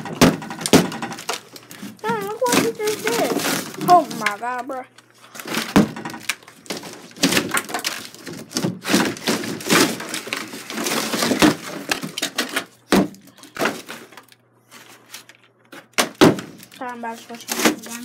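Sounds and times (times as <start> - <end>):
debris crumbling and clattering: 5.4 - 12.8.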